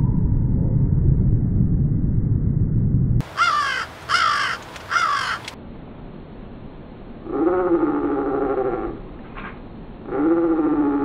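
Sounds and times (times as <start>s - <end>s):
low rumbling noise: 0.0s - 11.0s
crow cawing: 3.2s - 5.6s
slowed-down crow call: 3.2s - 5.6s.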